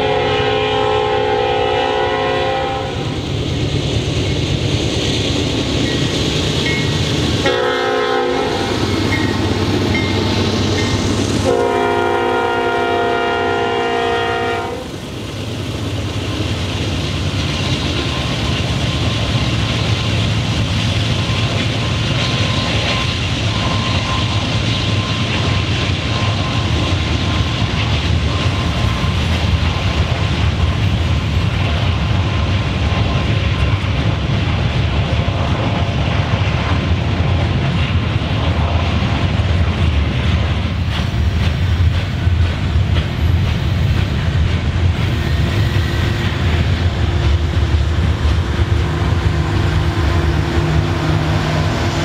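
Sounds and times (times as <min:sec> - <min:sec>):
train air horn blast: 0:00.0 - 0:03.2, 0:07.4 - 0:08.8, 0:11.4 - 0:14.9
train engine drone: 0:00.0 - 0:52.0
wheels rumbling on rail: 0:00.0 - 0:52.0.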